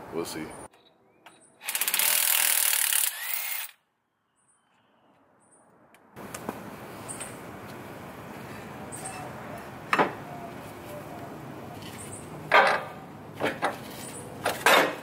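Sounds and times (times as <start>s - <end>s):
metallic clunks and knocks: 14.4s - 15.0s.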